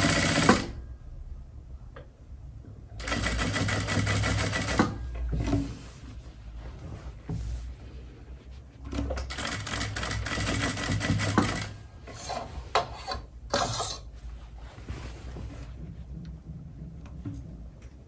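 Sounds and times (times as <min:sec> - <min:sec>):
sewing machine stitching: 0:00.0 - 0:00.8, 0:03.0 - 0:05.6, 0:08.9 - 0:12.5.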